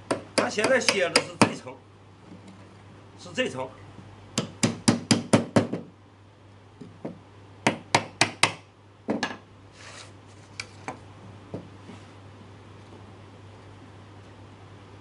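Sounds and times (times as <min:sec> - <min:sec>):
wood scraping on wood: 0:09.7 - 0:10.9.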